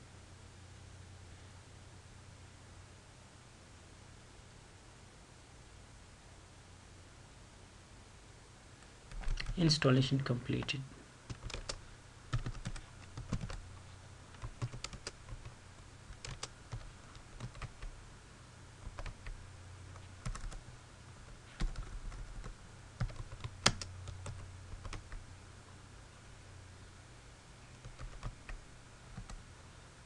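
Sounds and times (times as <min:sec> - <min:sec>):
keyboard typing: 0:09.1 - 0:09.6, 0:11.3 - 0:13.6, 0:14.3 - 0:17.9, 0:18.8 - 0:20.7, 0:21.5 - 0:25.2, 0:27.7 - 0:29.4.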